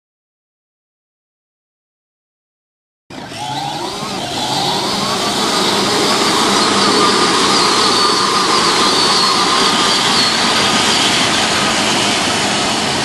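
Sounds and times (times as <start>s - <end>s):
dense rushing noise: 3.1s - 13.0s
electric motors whining: 3.1s - 13.0s.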